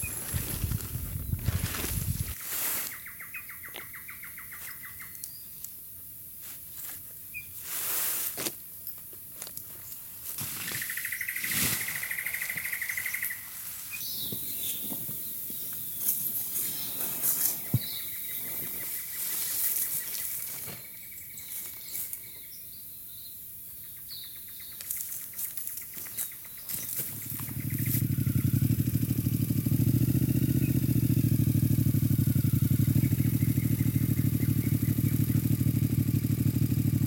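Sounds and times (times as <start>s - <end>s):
tent fabric rustling and flapping: 0.0s - 3.0s
birds chirping: 0.0s - 6.2s, 7.2s - 7.6s, 8.9s - 37.0s.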